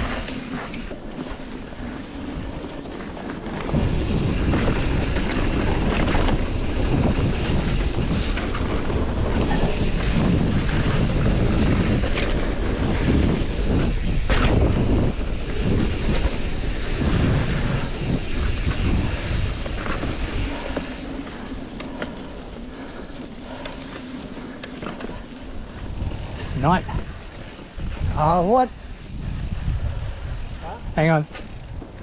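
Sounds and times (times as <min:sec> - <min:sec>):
bike tyres rumbling on dirt: 0:00.0 - 0:32.0.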